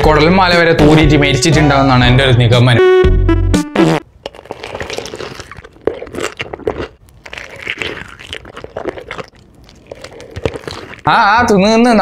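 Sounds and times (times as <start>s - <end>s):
person chewing crispy chicken: 4.2s - 11.1s.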